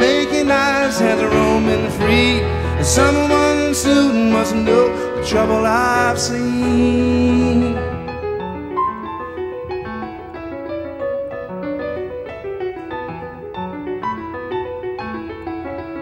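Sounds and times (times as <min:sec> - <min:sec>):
piano playing: 0:00.0 - 0:16.0.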